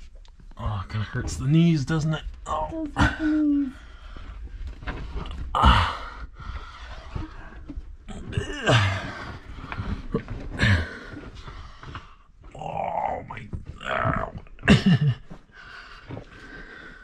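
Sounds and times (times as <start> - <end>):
person breathing hard and groaning: 5.1 - 12.9.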